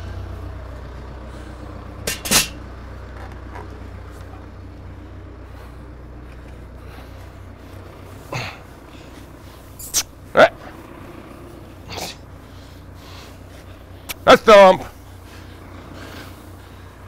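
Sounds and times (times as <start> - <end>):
tractor engine idling: 0.0 - 17.0.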